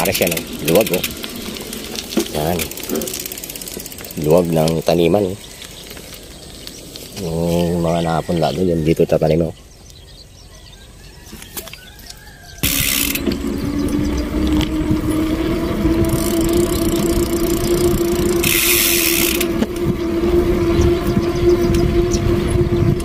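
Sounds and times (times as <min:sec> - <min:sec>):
motorcycle engine running: 0:00.0 - 0:05.2, 0:12.6 - 0:23.0
wind rush: 0:12.6 - 0:23.0.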